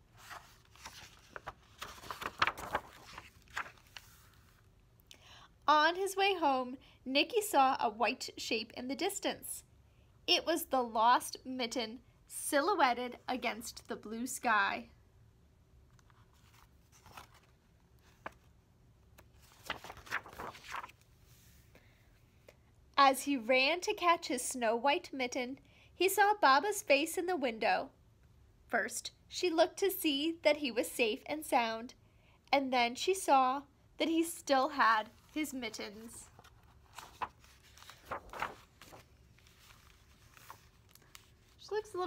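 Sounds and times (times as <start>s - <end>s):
book pages rustling: 0.0s - 4.7s, 15.9s - 18.6s, 19.2s - 21.6s, 35.1s - 42.0s.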